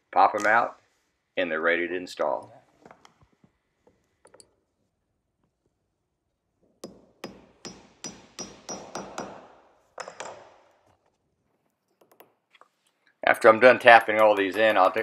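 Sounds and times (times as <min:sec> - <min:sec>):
hammer tapping wooden plugs: 0:06.8 - 0:10.5, 0:13.9 - 0:15.0.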